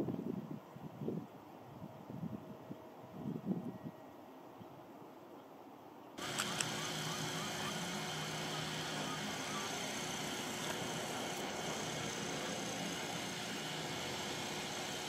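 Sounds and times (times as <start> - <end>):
sharp clicks: 6.2 - 7.8, 8.9 - 12.8
street traffic noise: 6.2 - 15.0.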